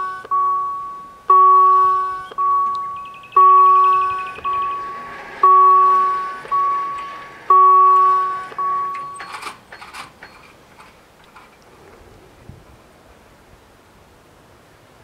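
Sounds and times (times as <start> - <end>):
level crossing warning bell: 0.0 - 10.6.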